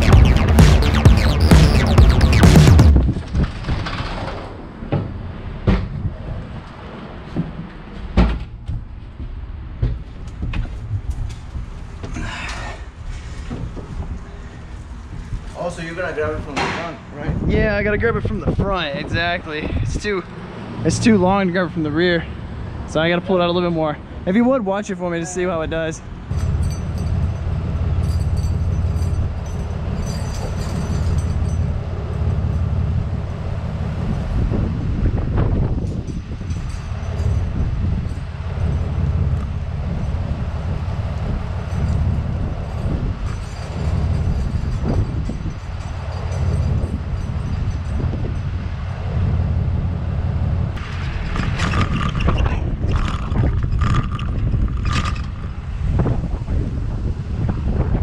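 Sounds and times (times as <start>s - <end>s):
truck engine and winch rumbling: 0.0s - 24.6s, 25.4s - 58.0s
chains clanking and rattling: 26.3s - 34.2s, 35.6s - 50.2s, 50.8s - 56.2s.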